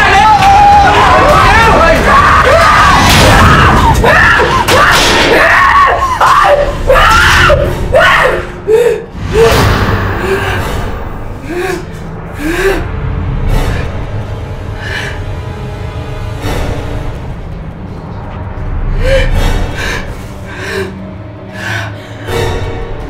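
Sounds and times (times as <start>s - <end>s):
voices crying out and gasping: 0.0s - 13.0s
music: 0.0s - 23.0s.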